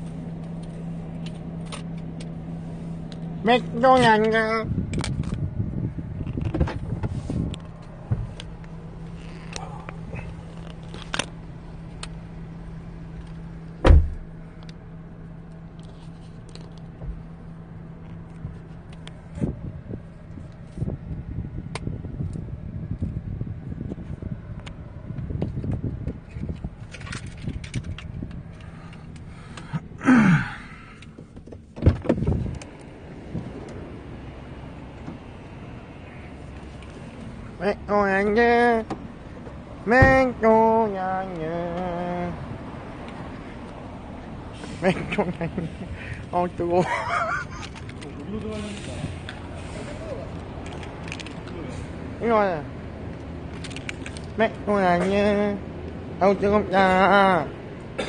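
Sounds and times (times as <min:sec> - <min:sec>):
steady low hum: 0:00.0 - 0:58.0
car door thump: 0:13.8 - 0:14.3, 0:31.2 - 0:32.4, 0:40.0 - 0:40.2
phone handling rustling and knocks: 0:31.0 - 0:32.7.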